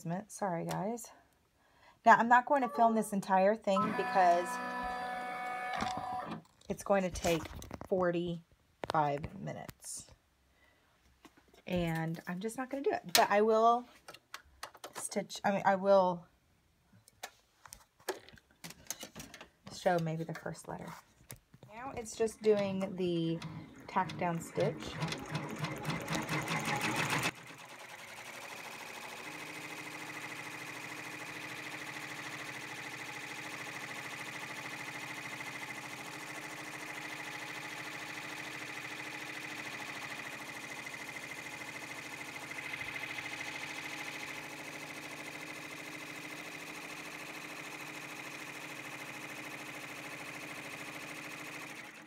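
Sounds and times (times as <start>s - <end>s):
embroidery machine stitching: 22.0s - 52.0s.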